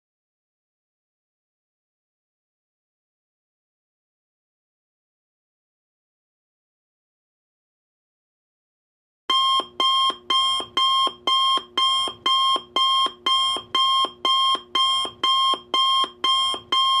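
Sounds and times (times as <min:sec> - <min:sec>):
timer alarm beeping: 0:09.3 - 0:17.0.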